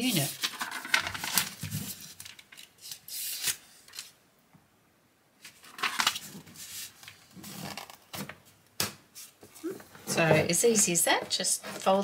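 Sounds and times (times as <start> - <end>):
plastic rubbing: 5.5 - 8.5.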